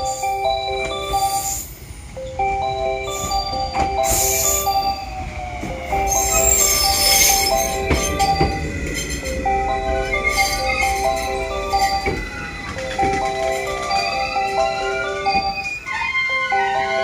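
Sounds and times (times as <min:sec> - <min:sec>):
mallet percussion melody: 0:00.0 - 0:17.0
train clicks: 0:00.0 - 0:17.0
train rushing hiss: 0:01.1 - 0:02.4, 0:03.0 - 0:17.0.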